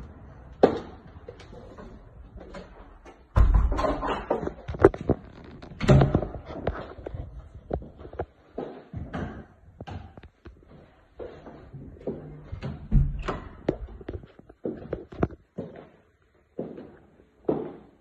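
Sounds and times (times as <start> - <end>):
doors knocking and thumping: 3.3 - 5.1, 12.5 - 14.0.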